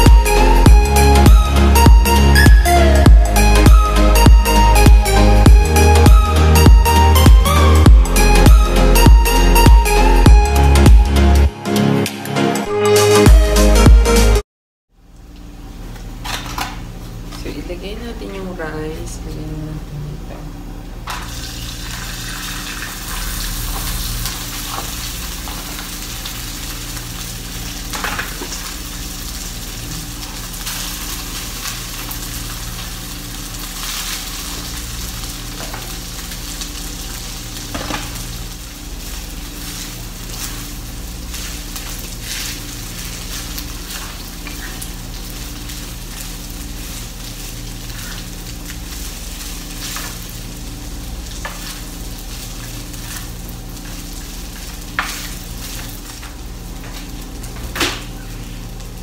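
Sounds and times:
rice sizzling in hot oil: 0:21.0 - 0:59.0.

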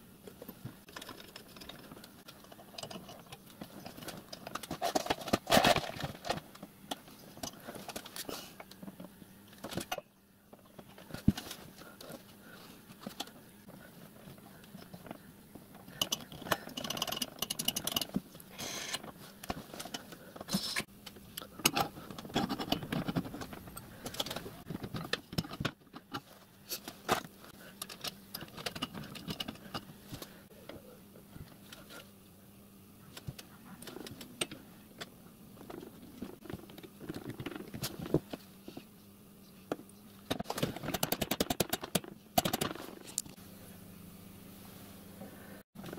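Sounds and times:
faint steady hum: 0:00.0 - 0:45.9
metal tools clinking and scraping: 0:00.9 - 0:08.3.

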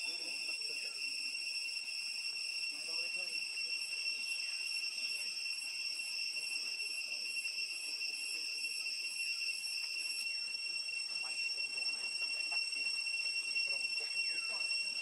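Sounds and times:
high-pitched insect drone: 0:00.0 - 0:15.0.

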